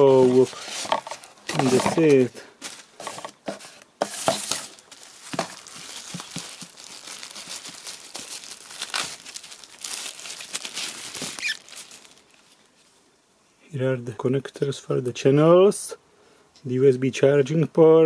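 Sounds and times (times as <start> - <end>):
plastic bag crinkling: 0.0 - 12.6.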